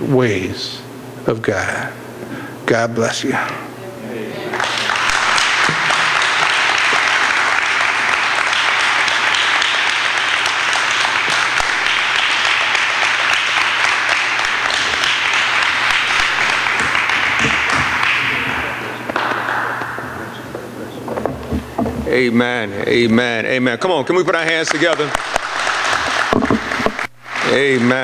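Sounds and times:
congregation applauding: 0:04.4 - 0:21.6, 0:24.4 - 0:28.0.

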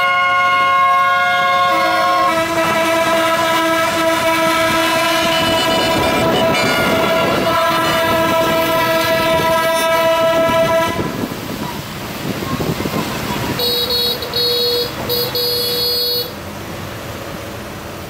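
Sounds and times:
truck air horn blast: 0:00.0 - 0:11.3, 0:13.6 - 0:16.4
street traffic: 0:00.0 - 0:18.0.

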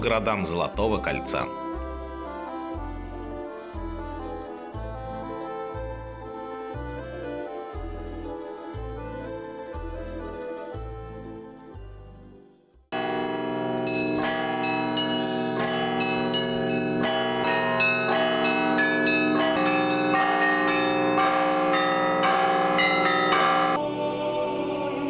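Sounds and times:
church bells pealing: 0:13.0 - 0:24.0.

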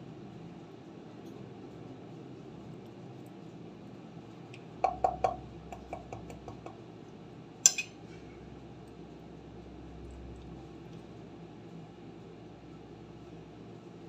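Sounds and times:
fork clinking on ceramic plate: 0:07.6 - 0:08.0.

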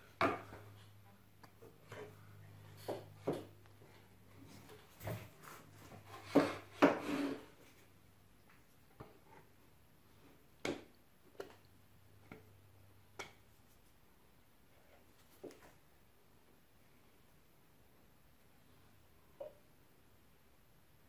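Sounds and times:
wooden spreader scraping on board: 0:05.0 - 0:07.7.

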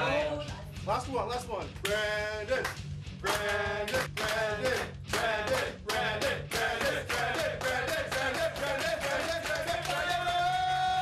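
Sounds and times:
music: 0:00.0 - 0:11.0
rhythmic clapping: 0:01.6 - 0:11.0
men chanting: 0:01.8 - 0:11.0
people cheering: 0:06.0 - 0:11.0.

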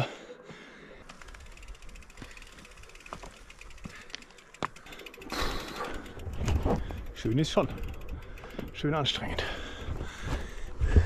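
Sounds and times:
bicycle freewheel ticking: 0:01.0 - 0:09.8.

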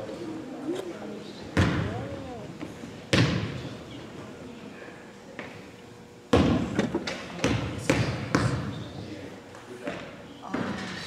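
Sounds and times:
basketball bouncing on gym floor: 0:01.6 - 0:02.1, 0:03.1 - 0:03.7, 0:06.3 - 0:08.9.

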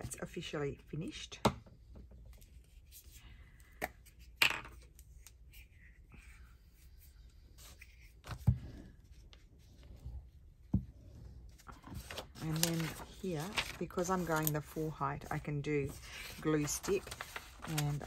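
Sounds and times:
paper rustling: 0:11.4 - 0:18.0.

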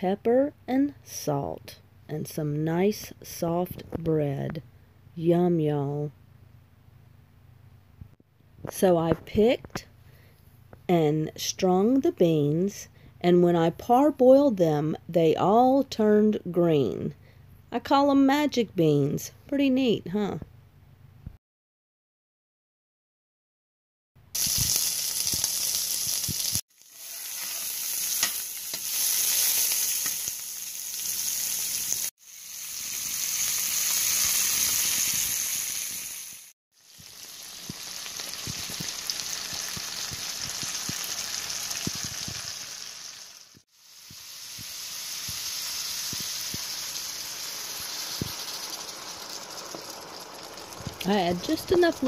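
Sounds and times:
food sizzling in skillet: 0:24.4 - 0:52.0.

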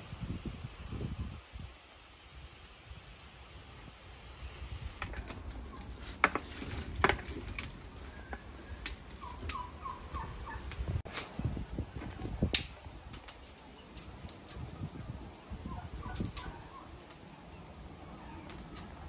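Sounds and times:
branches crackling in fire: 0:00.0 - 0:19.0
sharp cracks: 0:08.8 - 0:09.7, 0:12.4 - 0:14.6.

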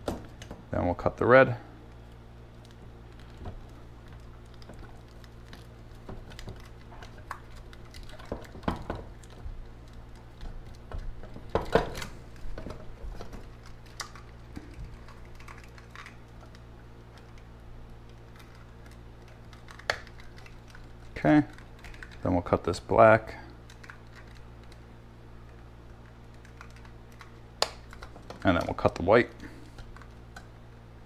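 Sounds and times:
faint low hum: 0:00.0 - 0:31.0.

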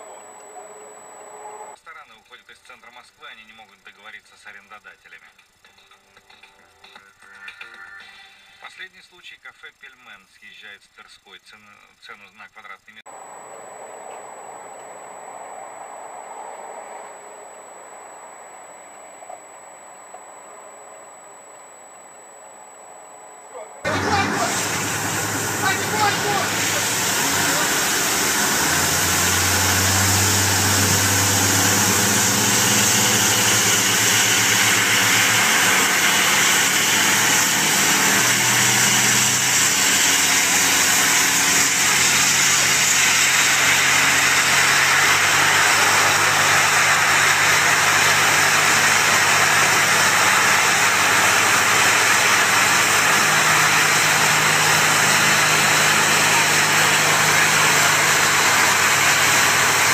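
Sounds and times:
pump engine running: 0:00.0 - 0:01.8, 0:13.1 - 0:59.9
high-pressure water jets hissing: 0:23.9 - 0:59.9.

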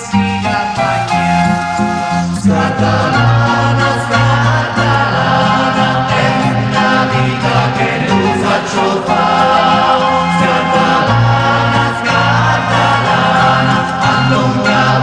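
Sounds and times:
group of voices singing: 0:00.0 - 0:15.0
held low notes: 0:00.0 - 0:15.0.

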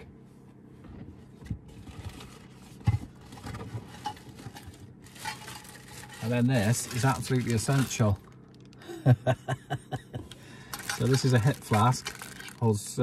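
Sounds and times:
objects knocking and scraping: 0:00.9 - 0:07.8
plastic bag rustling: 0:03.2 - 0:08.8, 0:10.7 - 0:12.8.

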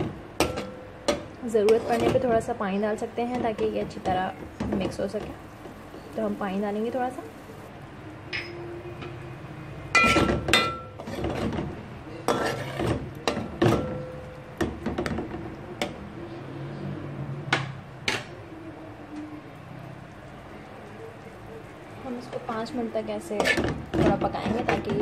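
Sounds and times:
metal spoon clinking in pot: 0:08.3 - 0:08.7, 0:09.9 - 0:11.1.

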